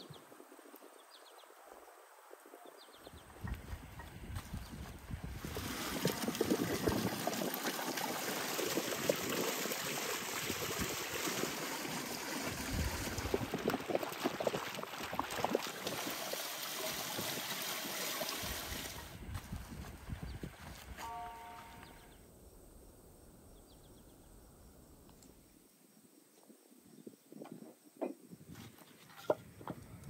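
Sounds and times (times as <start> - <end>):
water splashing over grapes in a bowl: 5.3 - 19.1.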